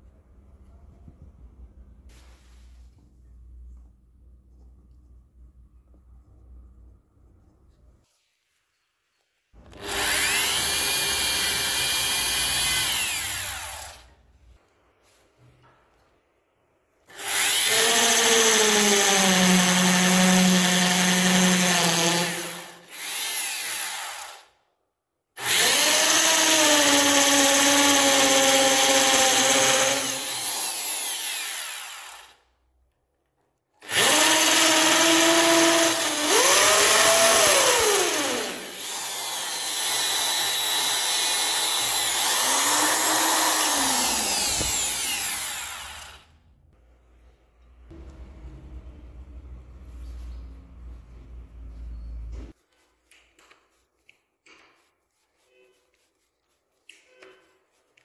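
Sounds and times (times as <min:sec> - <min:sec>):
power drill boring into wood: 0:09.6 - 0:14.1, 0:17.1 - 0:24.5, 0:25.4 - 0:32.4, 0:33.8 - 0:46.3.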